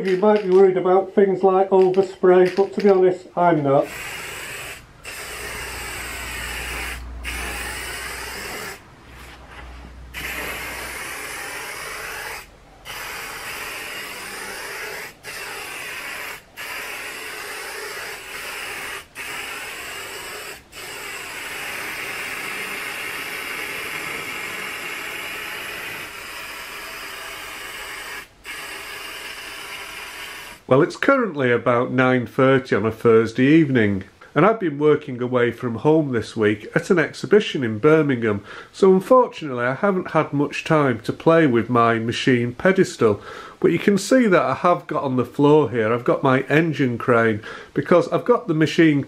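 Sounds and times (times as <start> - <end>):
spray paint can hissing: 3.8 - 9.4, 10.1 - 30.6.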